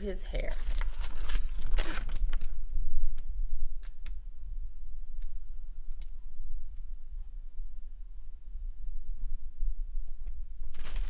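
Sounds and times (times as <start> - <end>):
steady low hum: 0.0 - 11.0
book pages rustling: 0.4 - 2.5.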